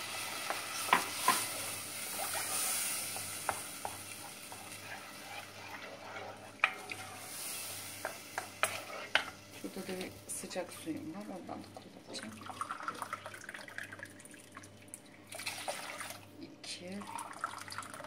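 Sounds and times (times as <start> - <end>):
tomato paste sizzling in a pot: 0.0 - 11.6
wooden spoon scraping a pot: 0.3 - 9.4.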